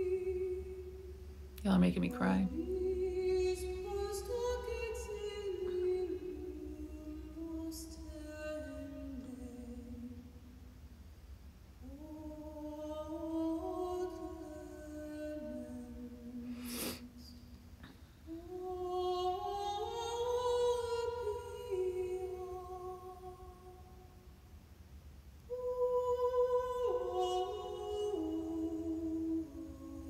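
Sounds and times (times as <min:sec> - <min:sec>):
short breathy noise: 0:16.5 - 0:18.1.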